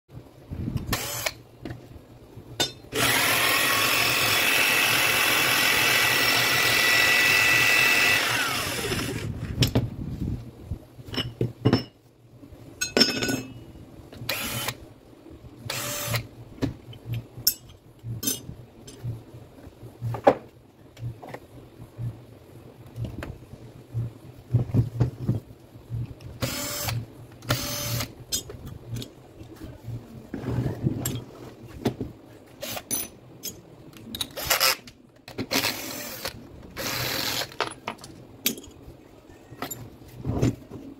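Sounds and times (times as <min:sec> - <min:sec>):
electric motor whining: 0:03.0 - 0:09.6.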